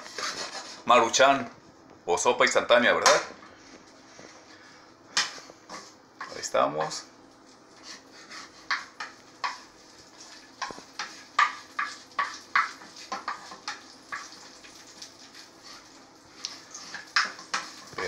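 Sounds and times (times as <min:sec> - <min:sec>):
utensil scraping a frying pan: 0:00.0 - 0:01.0, 0:07.7 - 0:18.0.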